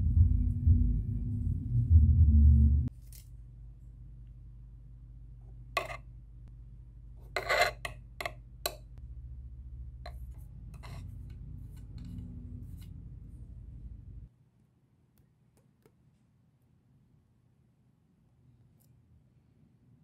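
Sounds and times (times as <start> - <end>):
steady low hum: 0.0 - 14.3.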